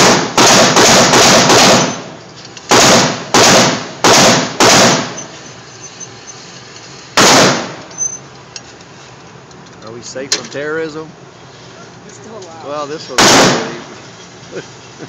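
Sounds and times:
pistol shots echoing: 0.0 - 2.1, 2.7 - 5.2, 7.2 - 7.8, 13.2 - 13.8.

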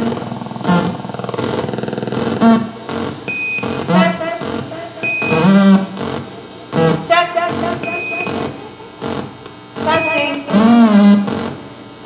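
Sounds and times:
high beeps: 0.0 - 8.8, 9.8 - 10.5
warbling electronic tones: 0.0 - 11.6
low electronic blips: 0.0 - 11.7
experimental electronic noise music: 0.0 - 12.0.

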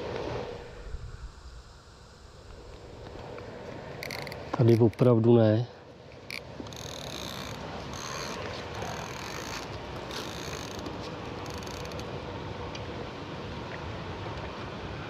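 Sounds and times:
line hissing: 0.0 - 5.1
fishing reel gears turning: 3.9 - 5.1, 6.2 - 12.1.

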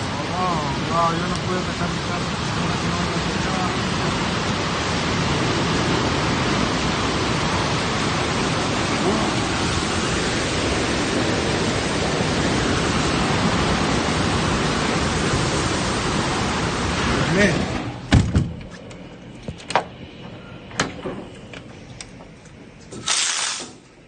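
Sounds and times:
heavy rain: 0.0 - 18.3
roar of tornado winds: 0.0 - 23.0.

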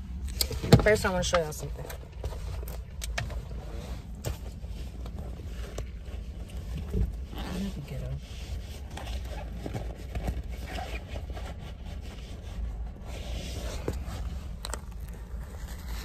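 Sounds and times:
low rumble inside a car: 0.0 - 16.0
phone and wallet handling noise: 13.4 - 16.0.

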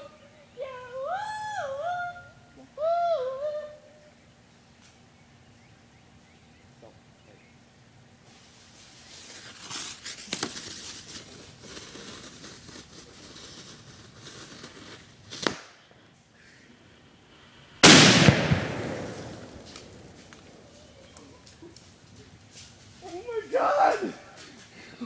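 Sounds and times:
firework blast: 17.7 - 20.6.

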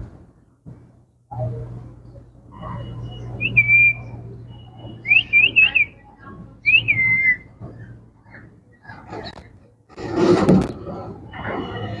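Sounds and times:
parakeet whistling: 2.6 - 6.0, 6.6 - 7.4.

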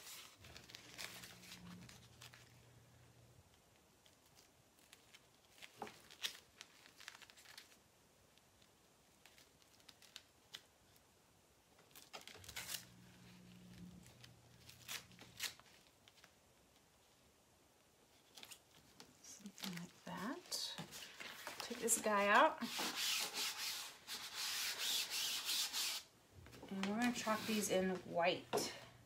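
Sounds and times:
plastic sheets crinkling: 0.0 - 2.7, 4.0 - 11.0, 11.8 - 16.8, 18.1 - 24.2.

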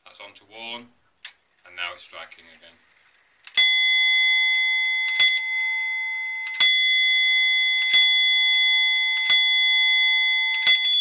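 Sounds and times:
clock hammer striking bell: 3.6 - 11.0.

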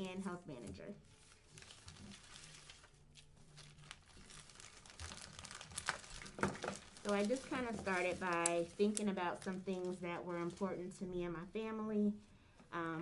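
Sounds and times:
paper rustling: 1.0 - 10.8
plastic bag crinkling: 1.0 - 10.8.

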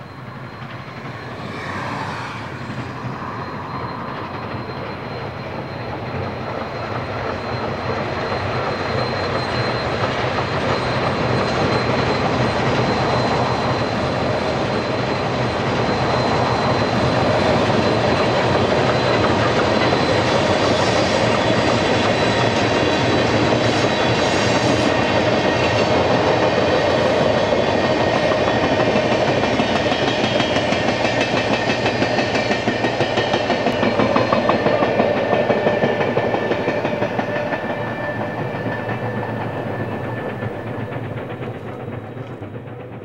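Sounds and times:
steam locomotive exhaust: 0.0 - 43.0.

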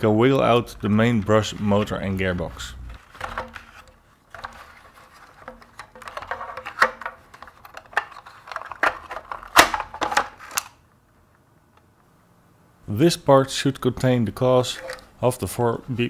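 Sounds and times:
plastic clicks knocks and scraping: 3.0 - 10.8.

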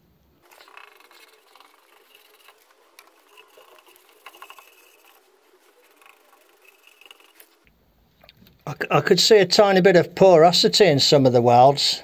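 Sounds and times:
brush tapping metal: 0.4 - 7.7
paintbrush strokes on metal: 0.4 - 7.7.

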